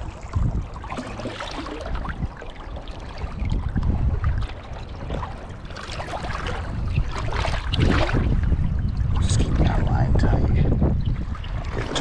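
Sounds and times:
water splashing around legs: 0.0s - 2.3s
rumble of moving water: 0.0s - 12.0s.

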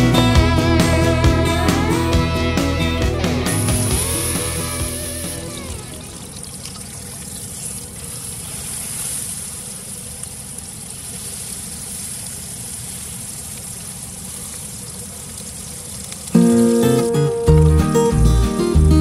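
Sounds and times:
steak sizzling in frying pan: 3.2s - 6.0s.

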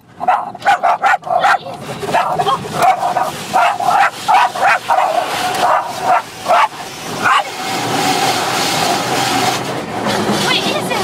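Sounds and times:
dog barking and yipping: 0.2s - 7.6s.

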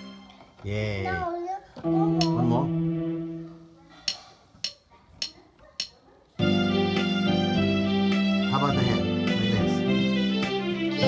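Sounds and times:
electronic keyboard held notes: 0.0s - 1.2s, 1.8s - 4.2s, 6.4s - 11.0s.

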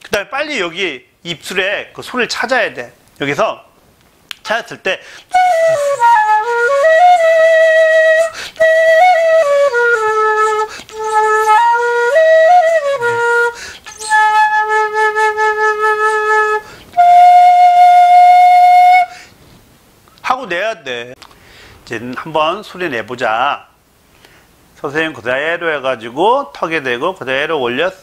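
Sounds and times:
end-blown flute playing: 5.3s - 19.1s.

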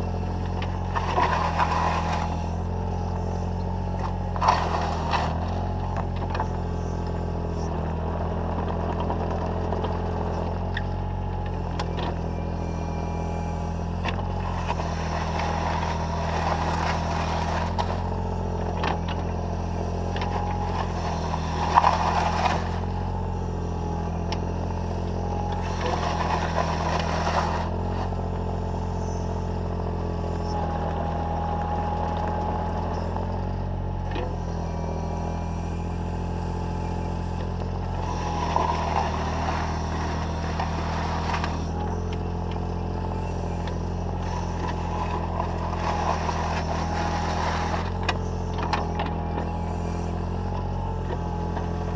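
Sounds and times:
excavator diesel engine running: 0.0s - 51.9s
bucket scraping through gravel: 0.8s - 2.8s, 4.1s - 5.6s, 14.5s - 18.2s, 19.9s - 23.1s, 25.5s - 28.4s, 37.8s - 48.5s.

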